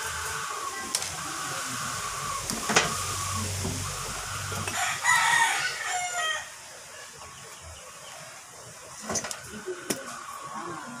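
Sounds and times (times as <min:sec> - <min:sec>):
rooster crowing: 0:04.2 - 0:06.6.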